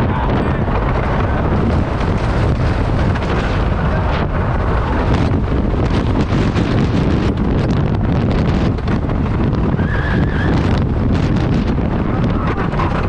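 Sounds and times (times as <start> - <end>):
rattling clacks: 0.0 - 9.7
roller coaster on wooden track: 0.0 - 13.0
wind buffeting microphone: 0.0 - 13.0.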